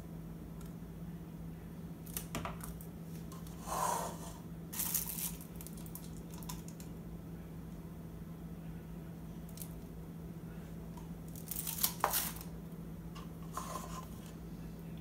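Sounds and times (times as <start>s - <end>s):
crinkly rattle: 4.8s - 6.9s, 11.3s - 12.5s
scraping rustle: 13.4s - 14.4s.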